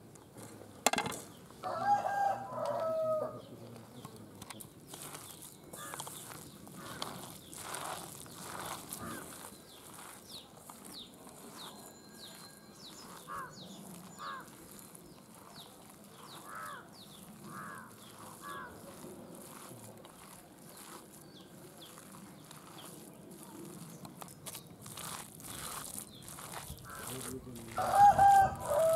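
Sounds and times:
high falling bird chirps: 5.0s - 19.0s
louder lower bird calls: 8.4s - 10.0s, 11.6s - 14.9s, 16.2s - 19.0s, 25.5s - 28.9s.

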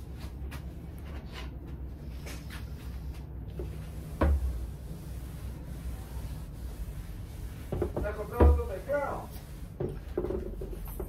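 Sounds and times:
eraser rubbing on whiteboard: 2.1s - 11.0s
knock: 7.7s - 8.7s.

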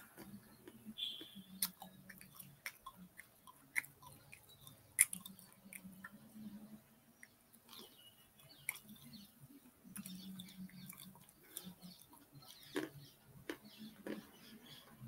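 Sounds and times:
wet mouth noises: 0.0s - 6.3s.

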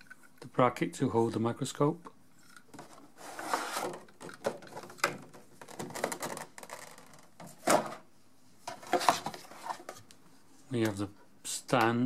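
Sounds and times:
plastic tray crinkling: 3.7s - 8.0s
plastic parts knocking: 3.8s - 8.0s.

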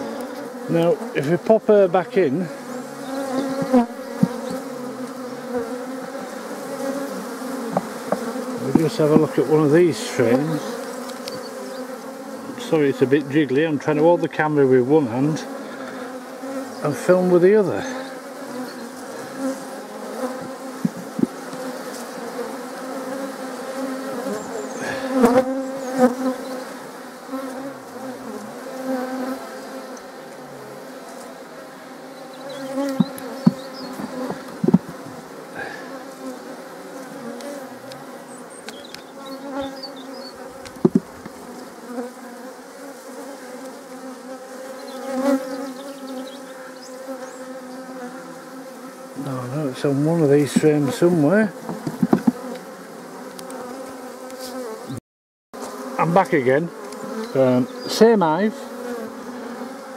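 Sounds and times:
honeybees buzzing: 0.0s - 55.0s, 55.6s - 59.9s
wooden hive frames knocking: 3.1s - 4.8s, 6.9s - 9.7s, 20.1s - 21.8s, 32.5s - 35.2s, 40.4s - 41.5s, 50.2s - 52.6s.

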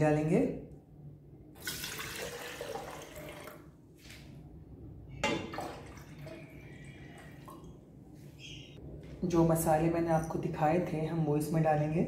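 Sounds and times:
water pouring into kettle: 1.6s - 3.6s.

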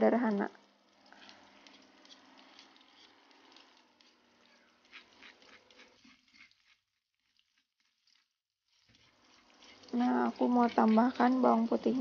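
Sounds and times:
onions sizzling in oil: 7.5s - 12.0s.

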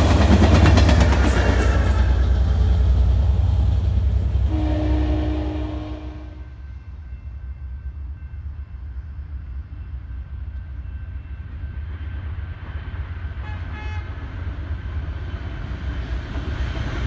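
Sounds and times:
diesel train rumble: 0.0s - 17.0s
train horn toot: 4.3s - 6.6s, 13.4s - 14.2s.

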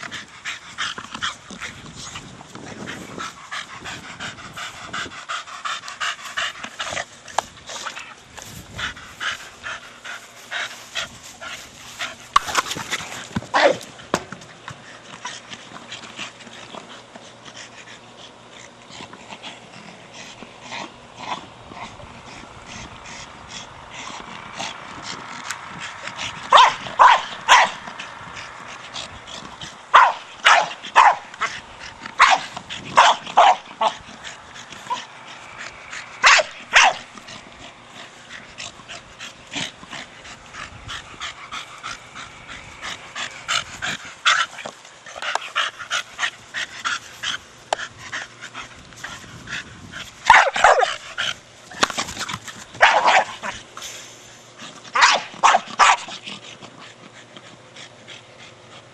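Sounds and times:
dog barking and yipping: 26.5s - 27.8s, 29.9s - 31.6s, 32.2s - 34.0s, 36.1s - 37.1s, 50.2s - 51.9s, 52.8s - 53.6s, 54.9s - 56.2s.

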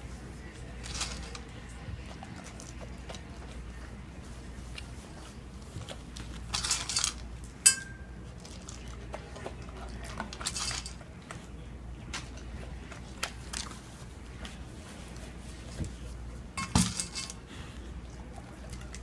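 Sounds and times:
dog eating kibble from metal bowl: 0.7s - 4.0s, 6.2s - 11.5s, 18.2s - 19.0s
sharp clink on metal bowl: 7.6s - 8.2s.

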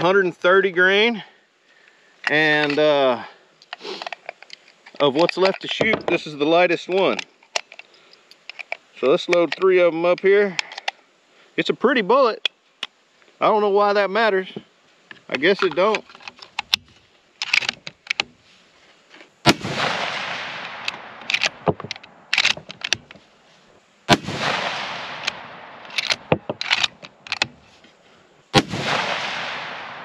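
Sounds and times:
rifle bolt clicks: 15.6s - 18.3s, 19.5s - 23.2s, 24.2s - 27.6s
rifle shots with echo: 19.5s - 21.7s, 24.1s - 26.5s, 28.6s - 30.0s.

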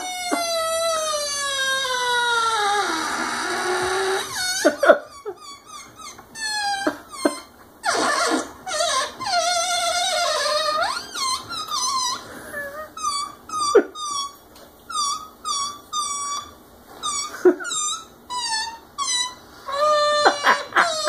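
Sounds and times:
balloon squealing: 0.0s - 21.0s.

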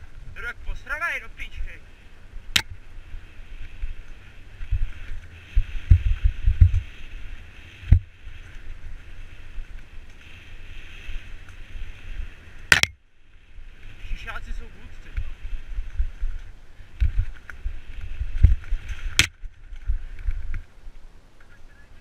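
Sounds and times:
bike rolling on dirt: 1.8s - 21.2s.

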